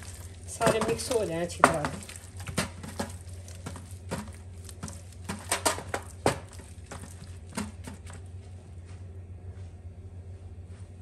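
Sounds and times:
raw chicken being handled in a bowl: 0:00.0 - 0:08.4
steady low hum: 0:00.0 - 0:11.0.

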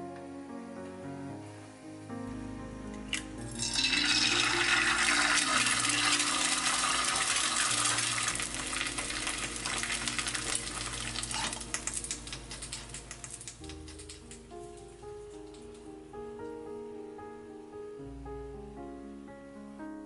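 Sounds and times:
soft background music: 0:00.0 - 0:20.0
egg sizzling in oil: 0:03.1 - 0:14.5.

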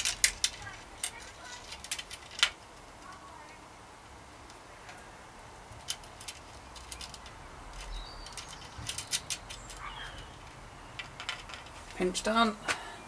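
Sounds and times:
metal mudguard parts clicking: 0:00.0 - 0:03.2, 0:05.7 - 0:12.0.

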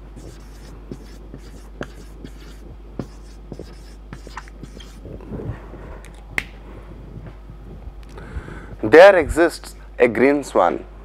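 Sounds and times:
marker writing on whiteboard: 0:00.0 - 0:05.0.

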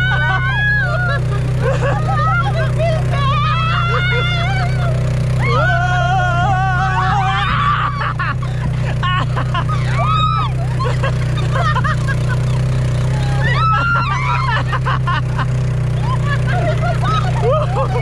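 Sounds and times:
people shrieking and laughing: 0:00.0 - 0:18.0
quad bike engine running: 0:00.0 - 0:18.0
high-pitched wavering scream: 0:09.7 - 0:10.8, 0:13.0 - 0:14.7.

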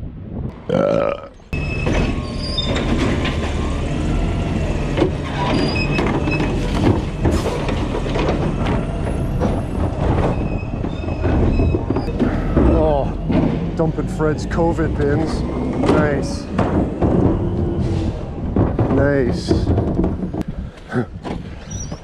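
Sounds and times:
garbage truck engine running: 0:01.5 - 0:21.9
metal knocks: 0:04.8 - 0:20.5.

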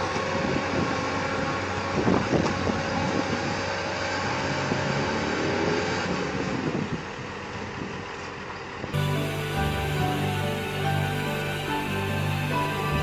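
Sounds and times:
diesel engine under load: 0:00.0 - 0:13.0
street noise: 0:06.2 - 0:13.0.

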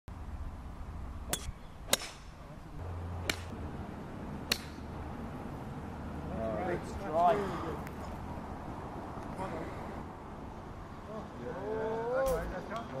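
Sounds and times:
low steady rumble: 0:00.1 - 0:07.0
golf club striking ball: 0:01.3 - 0:02.4, 0:03.1 - 0:03.6, 0:04.4 - 0:04.9.

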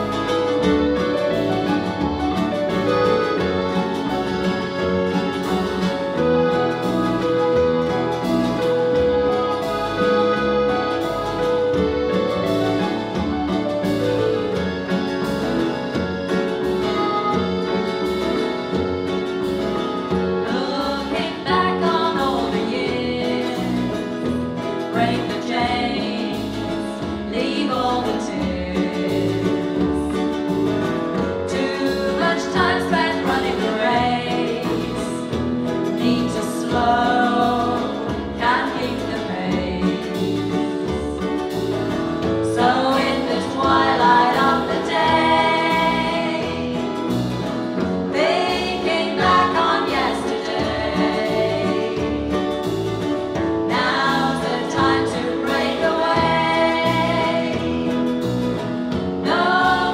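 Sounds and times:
live country band playing: 0:00.0 - 0:59.9
woman singing: 0:20.4 - 0:41.5, 0:42.3 - 0:47.3, 0:48.1 - 0:52.6, 0:53.6 - 0:58.4, 0:59.2 - 0:59.9.

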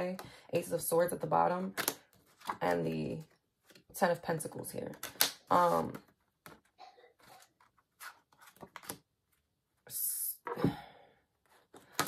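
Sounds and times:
cards clicking and rustling: 0:04.9 - 0:05.5, 0:07.3 - 0:09.1, 0:11.7 - 0:12.0.

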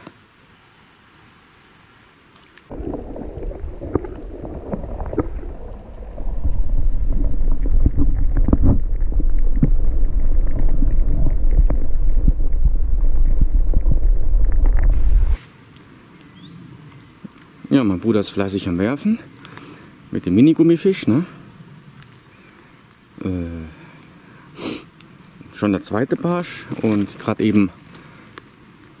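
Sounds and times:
wind rumbling on microphone: 0:02.7 - 0:15.4
handling crackling and rustling: 0:26.1 - 0:29.0.

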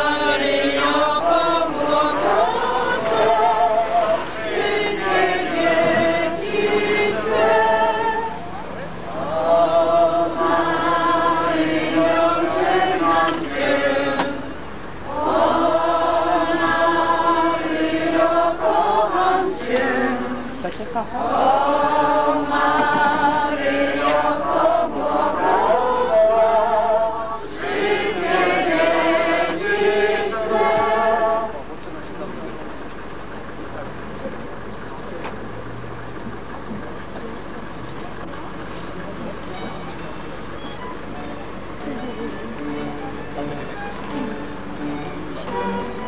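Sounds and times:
group singing a hymn: 0:00.0 - 0:32.0, 0:41.8 - 0:46.0.

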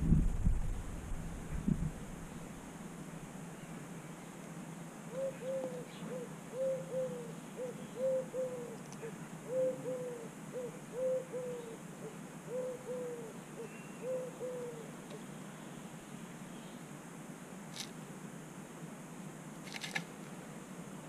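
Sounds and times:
pigeon cooing: 0:05.1 - 0:15.2.

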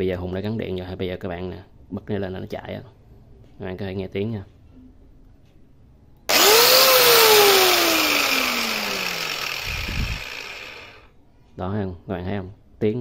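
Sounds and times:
angle grinder motor whining: 0:06.3 - 0:11.1.

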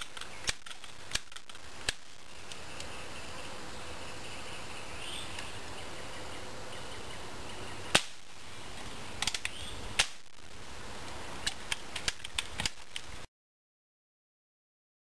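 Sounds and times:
pellet pistol shots: 0:07.9 - 0:08.2.

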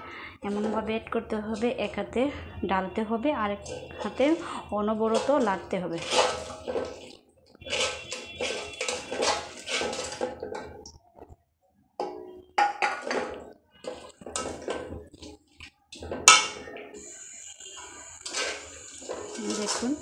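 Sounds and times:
spoon scraping a wok: 0:00.5 - 0:00.9, 0:03.5 - 0:10.8, 0:12.9 - 0:20.0.

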